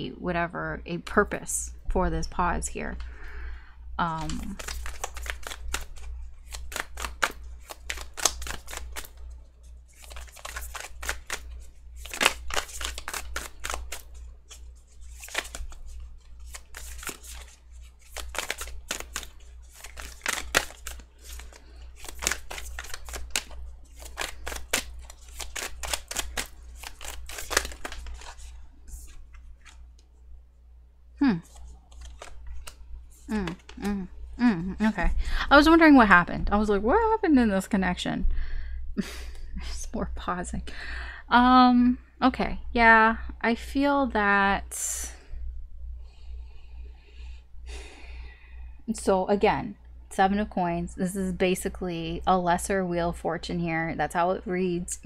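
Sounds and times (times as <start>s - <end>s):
low steady hum: 0.0s - 55.0s
cards being shuffled: 4.1s - 30.1s, 31.3s - 34.5s.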